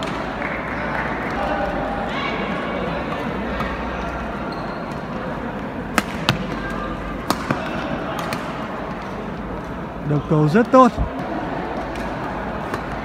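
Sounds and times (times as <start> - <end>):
rackets striking shuttlecock: 5.9 - 8.6.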